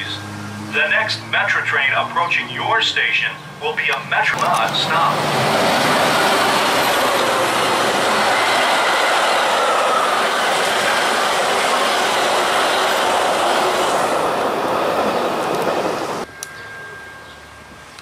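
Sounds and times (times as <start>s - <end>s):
train wheels rushing on rails: 4.2s - 16.9s.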